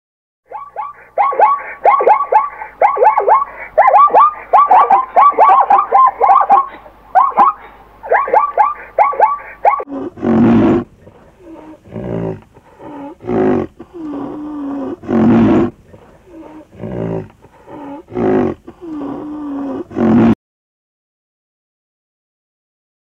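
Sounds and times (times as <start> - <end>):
short rising and falling yelps: 0.5 - 9.9
large animal harsh calls: 0.5 - 15.7
low drawn-out moans: 9.9 - 20.4.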